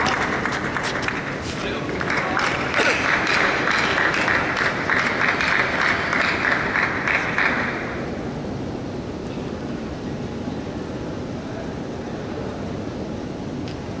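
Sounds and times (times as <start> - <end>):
audience applauding: 0.0 - 8.2.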